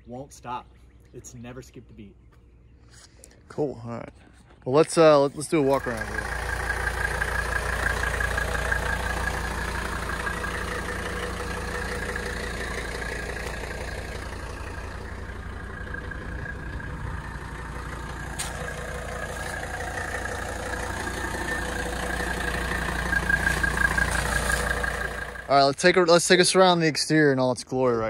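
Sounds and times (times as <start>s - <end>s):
diesel engine idling: 5.0s - 27.3s.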